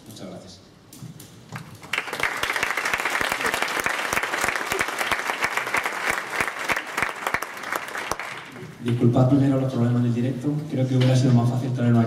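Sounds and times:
audience applauding: 1.6s - 8.7s.

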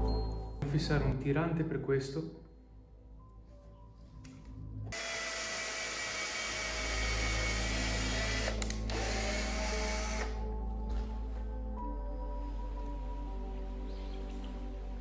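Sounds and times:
electric drill whining: 4.9s - 10.4s.

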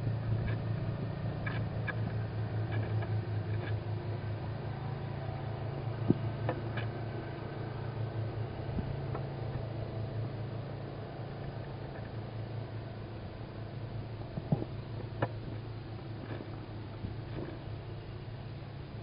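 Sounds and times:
steady low hum: 0.0s - 19.0s
owl chicks scratching and clicking: 1.4s - 3.9s, 6.0s - 7.0s.

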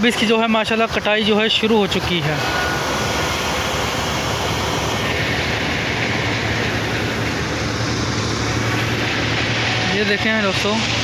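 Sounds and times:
combine harvester engine running: 0.0s - 11.0s
rush of machinery noise: 0.0s - 11.0s.

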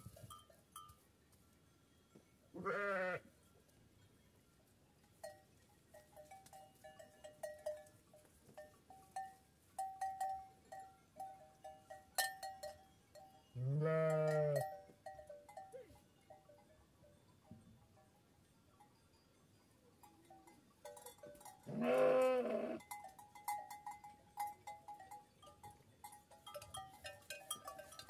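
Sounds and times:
sheep bells clinking: 0.0s - 28.0s
sheep bleating: 2.6s - 3.2s, 13.6s - 14.6s, 21.7s - 22.8s.

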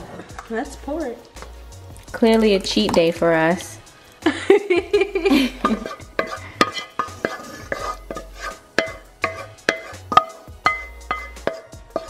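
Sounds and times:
spoon scraping metal pan: 5.6s - 12.0s.

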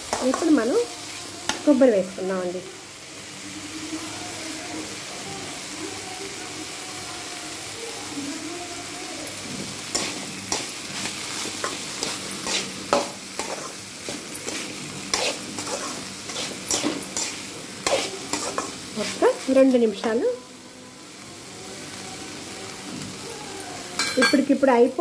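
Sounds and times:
beetroot sizzling in a pan: 0.0s - 25.0s
metal spatula scraping a pan: 9.4s - 20.2s.

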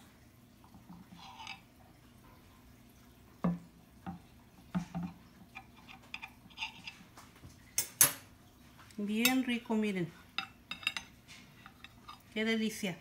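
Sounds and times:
metal utensils clinking on glass plate: 1.2s - 1.6s, 10.4s - 12.4s.

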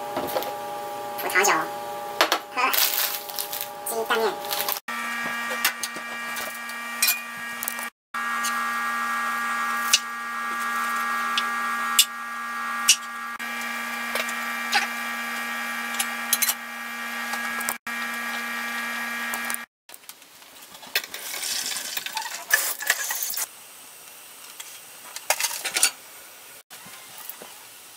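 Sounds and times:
whining motor hum: 0.0s - 19.7s
metal pots and lids clinking: 25.3s - 26.0s.

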